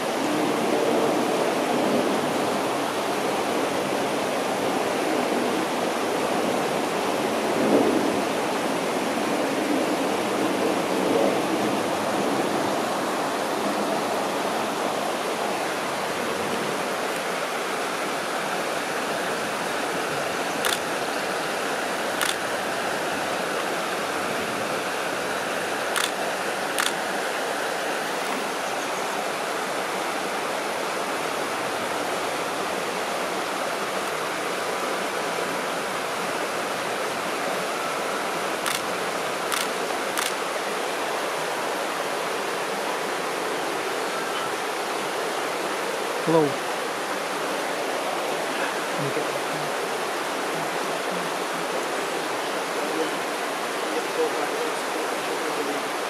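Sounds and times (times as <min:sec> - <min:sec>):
river water rushing: 0:00.0 - 0:56.0
sharp clicks: 0:20.6 - 0:20.9, 0:22.2 - 0:22.4, 0:26.0 - 0:26.2, 0:26.8 - 0:27.0, 0:38.7 - 0:38.9, 0:39.5 - 0:40.4.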